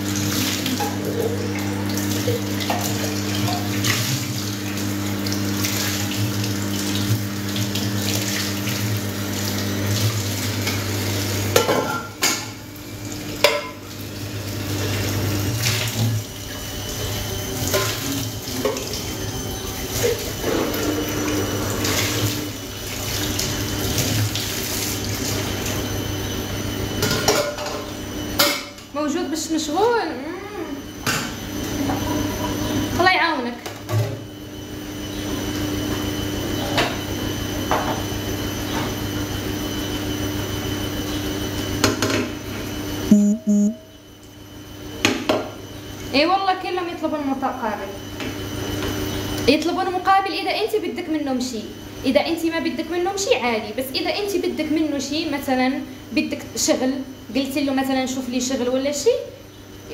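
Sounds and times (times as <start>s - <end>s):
tap water running into sink: 0.0s - 25.9s
low steady hum: 43.1s - 44.0s.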